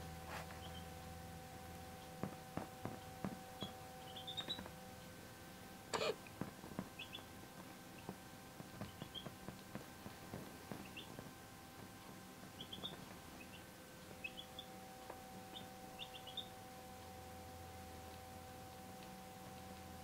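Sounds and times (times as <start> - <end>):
chicks peeping: 0.5 - 0.9, 3.6 - 4.7, 6.0 - 7.3, 8.7 - 9.7, 10.7 - 11.3, 12.4 - 16.5.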